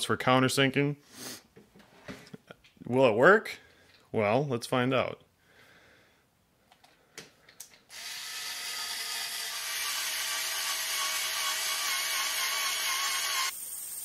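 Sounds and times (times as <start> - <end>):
cordless screwdriver motor whine: 7.9 - 13.6.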